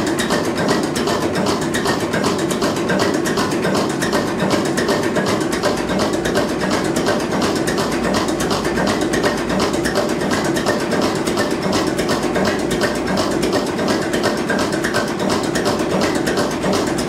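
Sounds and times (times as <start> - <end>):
valve gear clatter: 0.0 - 17.0.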